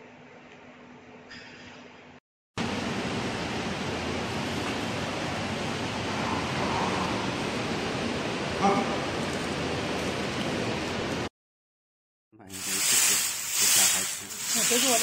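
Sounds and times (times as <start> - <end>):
machinery rushing noise: 12.5 - 15.0.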